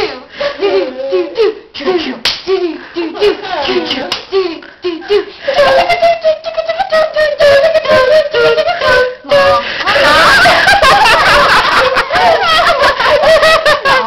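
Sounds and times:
child singing wavering tone: 0.8s - 9.6s.

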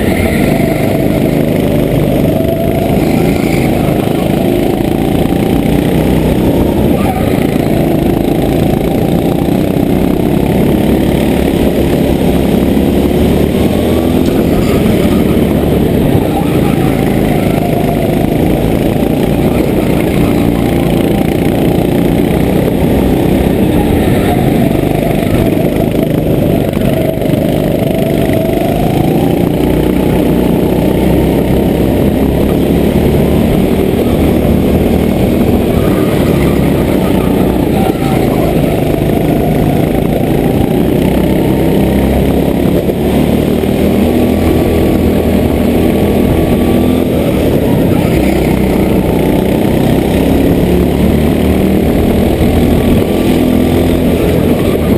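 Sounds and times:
go-kart engine revving: 0.0s - 54.9s.

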